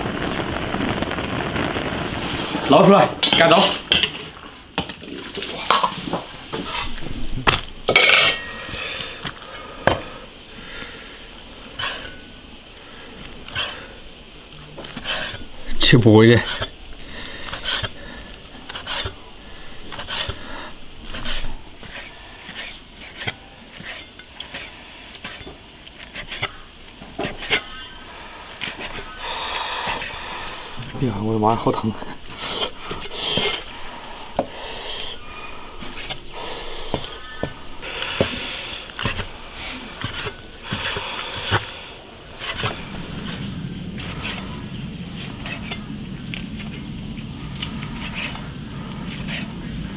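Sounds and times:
blade scraping: 18.6s - 19.2s.

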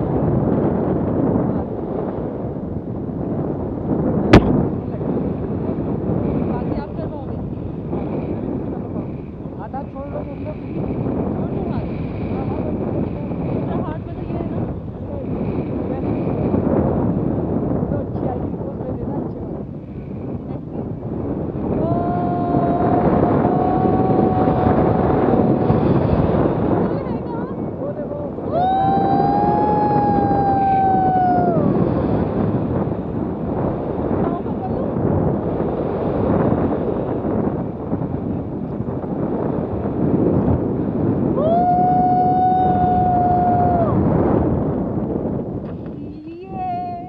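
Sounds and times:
wind rushing over microphone: 0.0s - 47.0s
person shouting: 21.8s - 25.3s.

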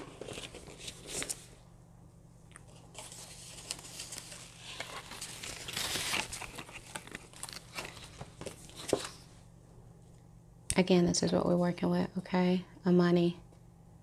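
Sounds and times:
packaging crinkling and rustling: 0.0s - 1.6s, 2.6s - 9.3s.

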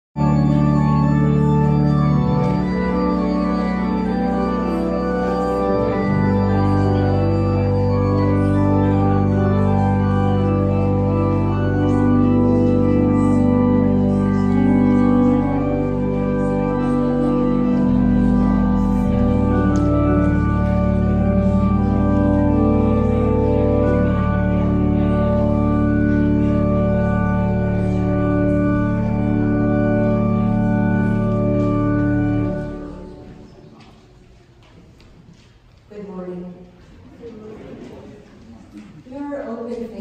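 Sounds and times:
organ playing slow chords: 0.2s - 34.3s.

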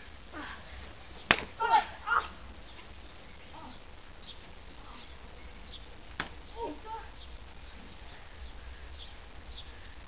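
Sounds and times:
sharp smack of a blow: 1.3s - 1.5s.

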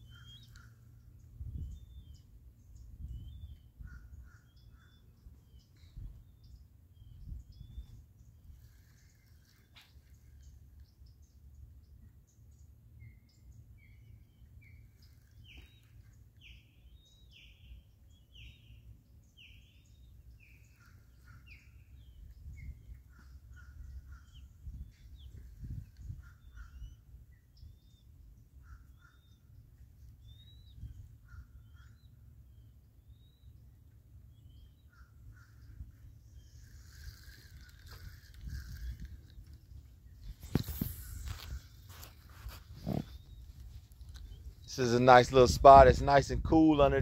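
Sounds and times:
faint bird calls: 0.0s - 45.4s
bird chirps: 0.0s - 46.2s.

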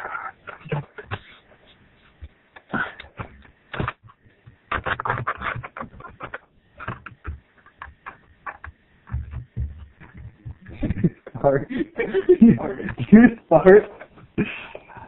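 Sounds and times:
irregular clicks and knocks: 3.0s - 11.1s.

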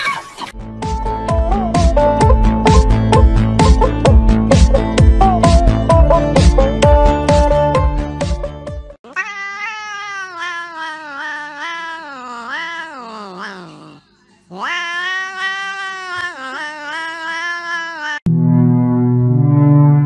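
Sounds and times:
cat yowling: 9.0s - 18.3s.

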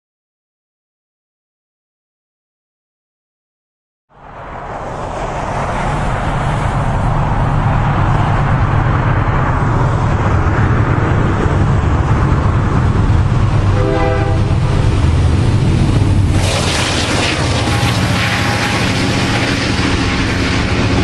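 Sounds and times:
diesel locomotive engine: 4.1s - 21.0s
train horn blast: 13.7s - 14.8s, 17.2s - 20.0s.

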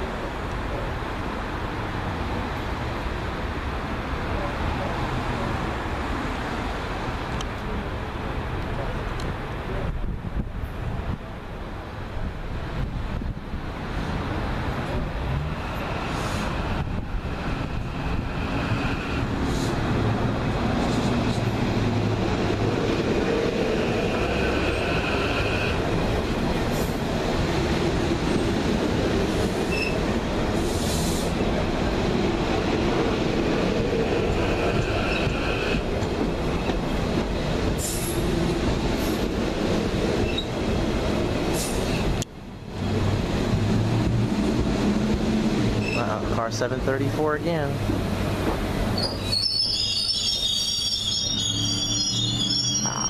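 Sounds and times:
train wheels rumbling on rail: 0.0s - 53.0s
high wheel squeal: 23.8s - 25.8s, 29.6s - 30.0s, 34.3s - 35.8s, 40.2s - 40.5s, 45.8s - 46.1s, 49.0s - 53.0s.

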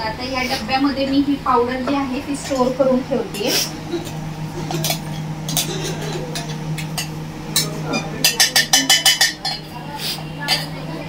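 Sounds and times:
sharp spoon taps: 4.8s - 9.6s.

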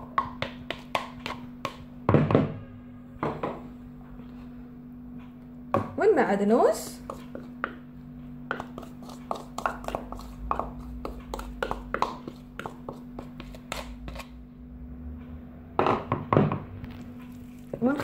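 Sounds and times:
wooden spoon scraping plastic bowls: 6.9s - 7.8s, 8.5s - 14.4s, 16.9s - 18.0s.

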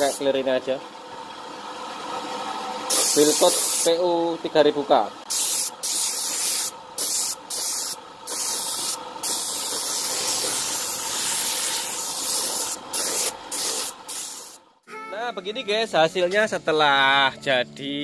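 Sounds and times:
spray gun hissing: 2.9s - 4.0s, 5.3s - 14.6s.

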